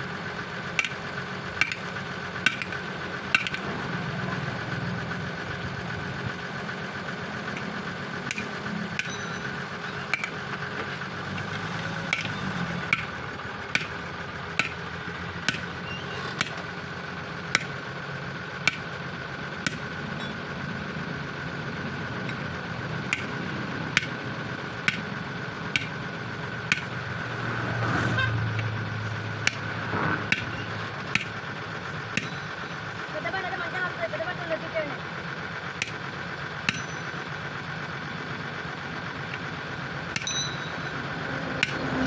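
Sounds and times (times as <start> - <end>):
steady engine hum: 0.0 - 42.0
hammer striking steel rim: 3.4 - 3.6, 8.3 - 9.4, 25.8 - 26.0, 32.2 - 32.8, 36.7 - 37.1, 40.2 - 40.9
vehicle passing: 26.1 - 30.9, 41.0 - 42.0.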